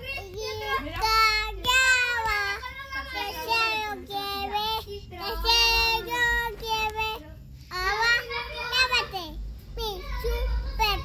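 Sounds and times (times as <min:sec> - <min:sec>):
toddler singing: 0:00.0 - 0:07.2.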